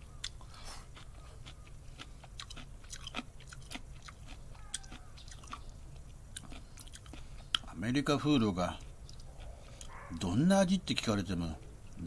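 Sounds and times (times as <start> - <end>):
person chewing soup: 0.0 - 7.8, 8.7 - 10.3
small mouth clicks and crunches: 0.2 - 7.8, 8.7 - 10.3.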